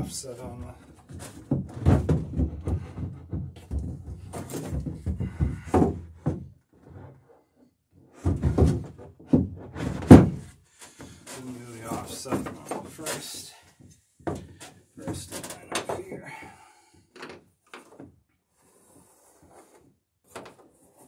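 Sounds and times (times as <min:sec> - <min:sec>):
wooden knocks and thumps: 0:00.6 - 0:07.2, 0:08.2 - 0:18.2.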